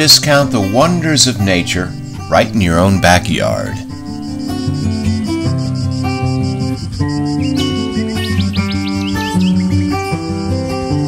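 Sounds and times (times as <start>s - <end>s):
insect trill: 0.0s - 11.0s
solo acoustic guitar: 0.0s - 11.0s.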